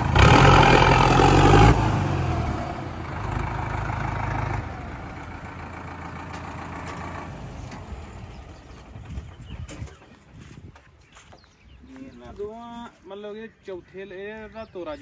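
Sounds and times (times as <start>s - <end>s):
tractor diesel engines running: 0.0s - 11.3s.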